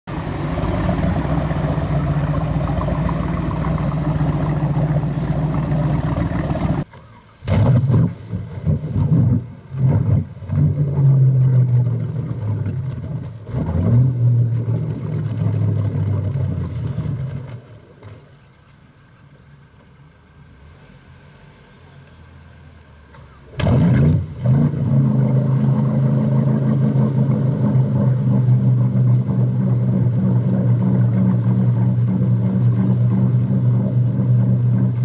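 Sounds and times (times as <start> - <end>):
powerboat engine revving: 0.1 - 18.2, 19.6 - 35.0.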